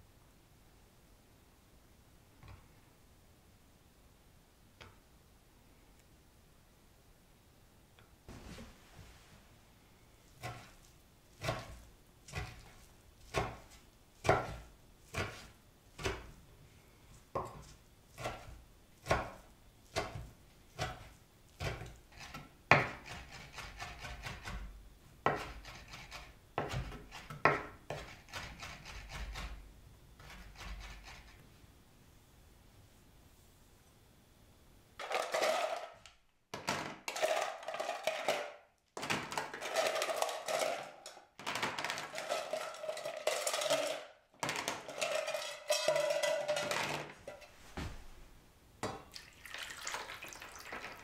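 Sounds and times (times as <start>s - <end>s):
knife chopping on wooden board: 10.4s - 10.8s, 11.4s - 12.7s, 13.3s - 16.4s, 17.4s - 29.6s.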